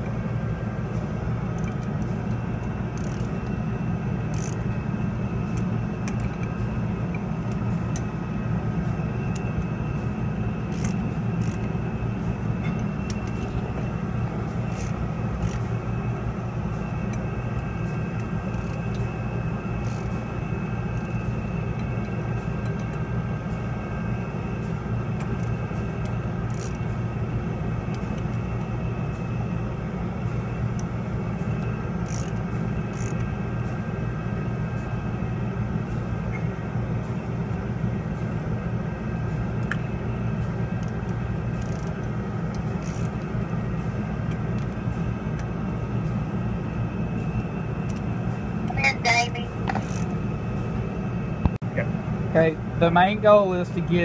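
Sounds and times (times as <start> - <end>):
faint steady whine: 0.0 - 54.0
steady low rumble: 0.0 - 54.0
ratchet wrench clicks: 1.6 - 3.4, 4.3 - 4.6, 10.7 - 11.7, 14.7 - 15.7, 18.5 - 19.1, 19.8 - 20.2, 20.9 - 21.9, 26.5 - 26.8, 32.0 - 33.2, 41.6 - 43.2, 49.7 - 50.1.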